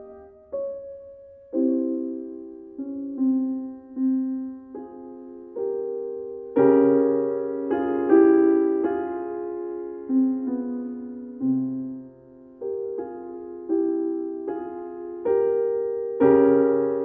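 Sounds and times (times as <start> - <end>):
slow soft piano music: 0.0 - 17.0.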